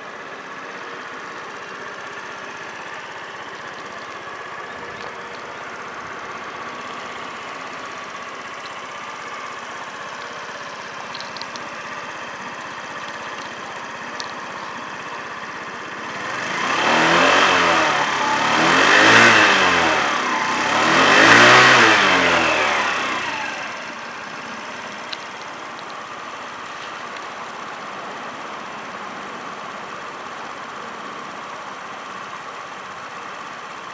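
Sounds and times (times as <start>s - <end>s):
scooter engine idling: 0.0s - 33.9s
scooter engine revving: 0.6s - 27.6s.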